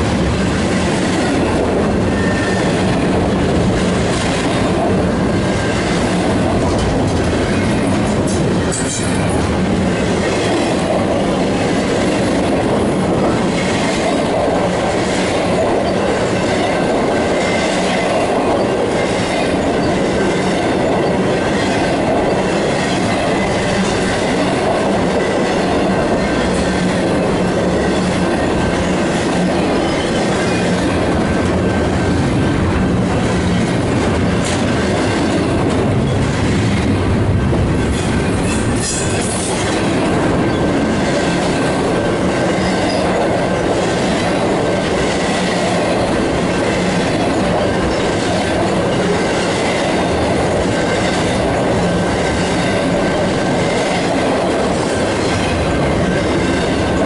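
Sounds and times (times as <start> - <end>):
clickety-clack over rail joints: 0.0 - 57.0
steel wheels rumbling on rail: 0.0 - 57.0
faint high wheel squeal: 2.1 - 2.8.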